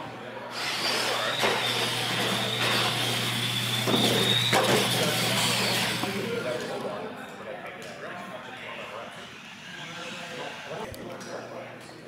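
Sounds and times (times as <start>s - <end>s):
high whine of toy truck motors: 0.5s - 6.8s.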